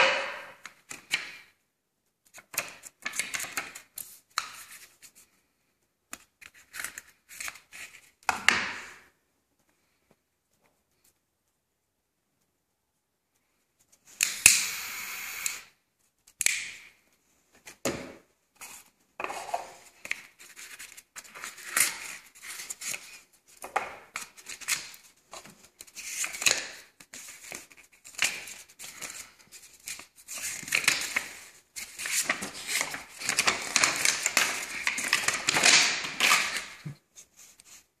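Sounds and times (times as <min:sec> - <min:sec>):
cardboard and paper rustling: 0:18.6 - 0:37.9.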